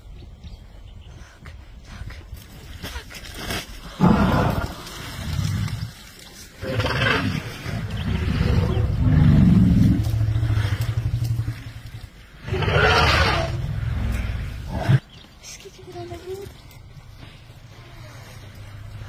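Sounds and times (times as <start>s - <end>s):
elephant rumbling roars: 4.0s - 6.0s, 6.6s - 15.0s.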